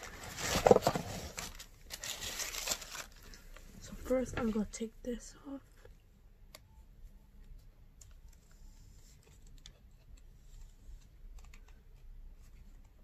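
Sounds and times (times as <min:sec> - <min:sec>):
gift box clicks and rustles: 0:00.0 - 0:03.3.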